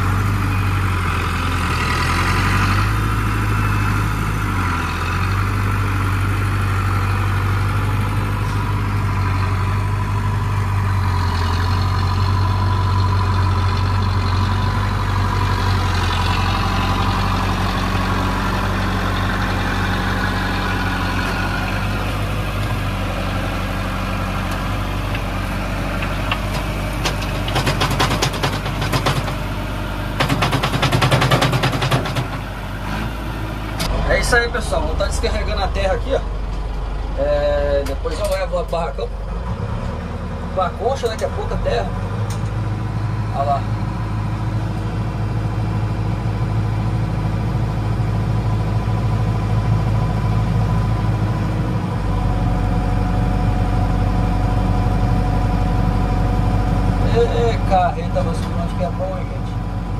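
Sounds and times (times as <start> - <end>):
diesel tractor engine running: 0.0 - 59.9
earth clattering into metal trailer: 30.2 - 32.5.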